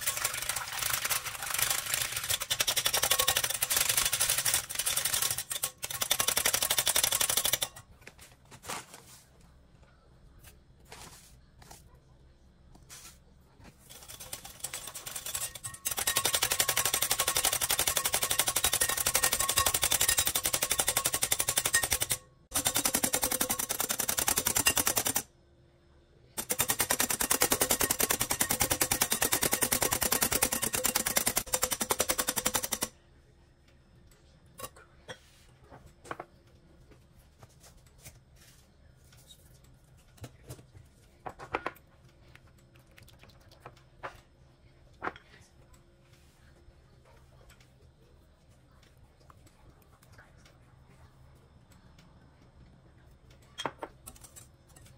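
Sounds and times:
whisk rattling in glass bowl: 0.0s - 7.8s, 13.8s - 25.2s, 26.4s - 32.9s.

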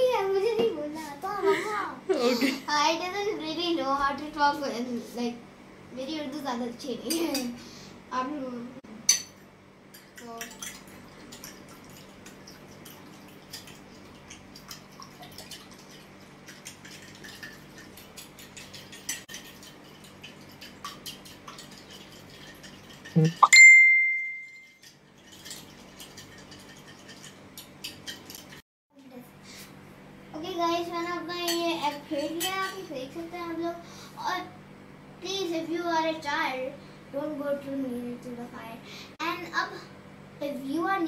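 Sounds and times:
bell-like ding: 23.4s - 24.8s
fork scraping glass bowl: 24.7s - 28.5s.

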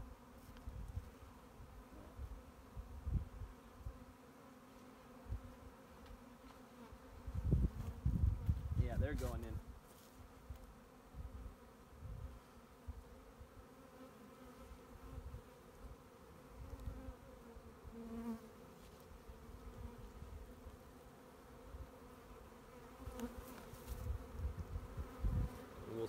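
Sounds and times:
bees buzzing: 9.6s - 26.0s.

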